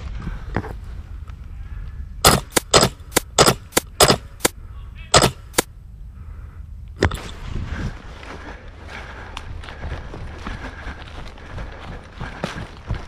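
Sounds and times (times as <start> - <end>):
airsoft gun shots: 2.2 - 4.5, 5.1 - 5.7.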